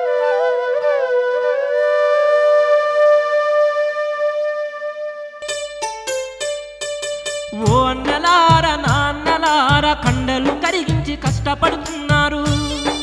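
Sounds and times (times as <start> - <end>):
flute melody: 0.0 - 8.2.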